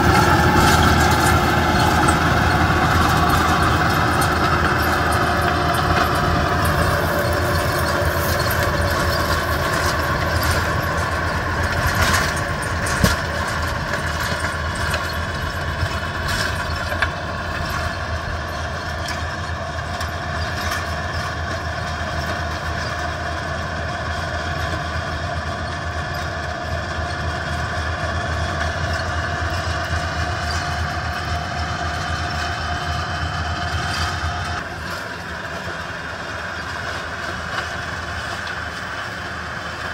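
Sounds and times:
rotary tiller in soil: 0.0s - 39.9s
tractor diesel engine running: 0.0s - 39.9s.

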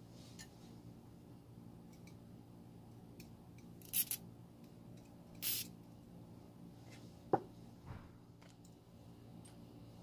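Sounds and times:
aerosol spray can hissing: 5.4s - 5.7s.

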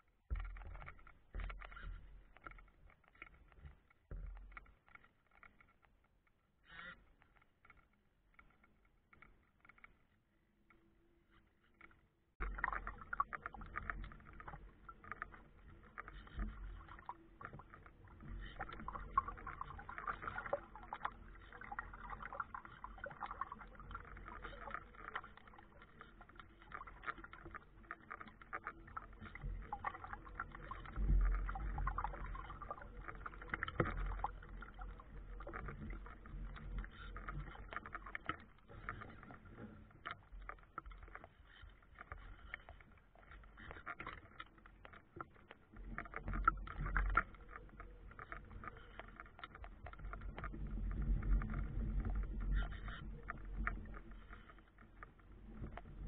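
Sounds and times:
water splashing against hull: 0.0s - 5.9s, 12.4s - 56.0s
wind rumble on microphone: 49.7s - 56.0s.

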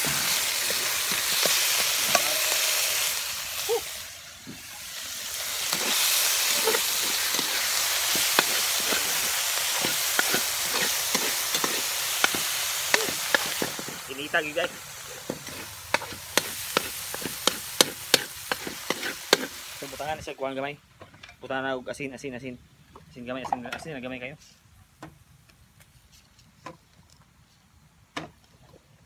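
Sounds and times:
meat sizzling in a pan: 0.0s - 20.2s
spatula scraping a pan: 5.6s - 19.6s.

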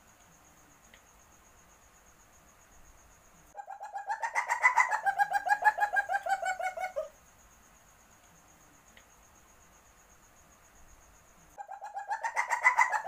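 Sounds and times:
high insect trill: 0.0s - 13.0s
animal chattering call: 11.6s - 13.0s.

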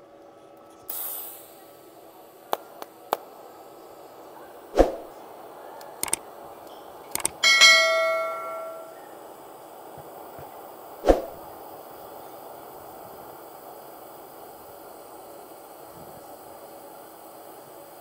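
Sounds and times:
light metal clicks: 5.8s - 6.2s, 7.1s - 8.9s
sharp metal knocks: 7.2s - 9.0s
struck metal ringing like a bell: 7.4s - 9.1s.

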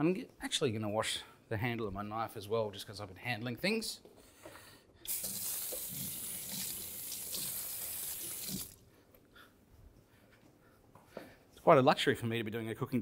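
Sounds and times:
kitchen tap running: 5.1s - 8.8s.

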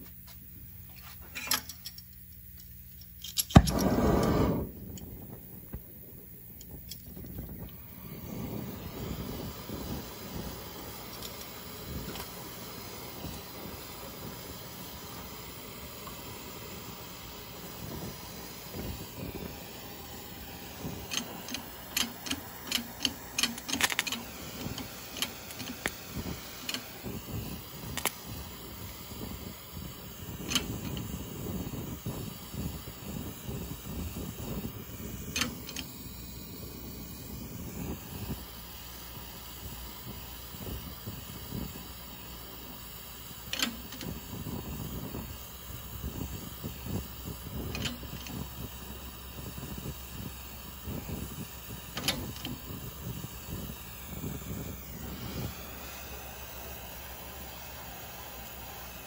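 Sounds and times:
sharp metal clicks and ticks: 1.4s - 3.8s, 21.0s - 27.0s, 27.9s - 28.2s, 30.5s - 31.1s, 35.3s - 35.9s, 43.5s - 44.2s, 47.7s - 48.4s
gas torch hissing: 3.4s - 59.0s.

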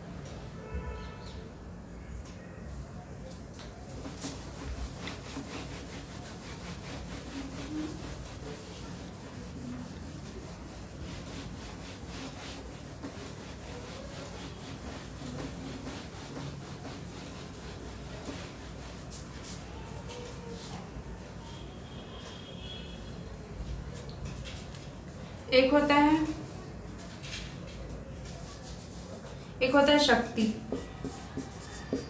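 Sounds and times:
cloth rubbing a whiteboard: 3.9s - 19.8s, 28.2s - 30.1s, 30.7s - 32.0s.

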